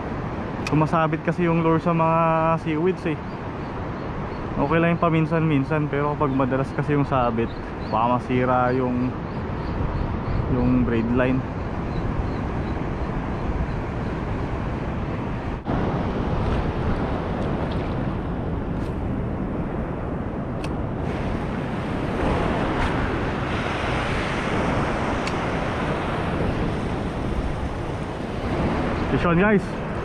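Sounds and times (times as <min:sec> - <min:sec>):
wind buffeting microphone: 0:00.0 - 0:30.0
surf washing over reef: 0:10.8 - 0:30.0.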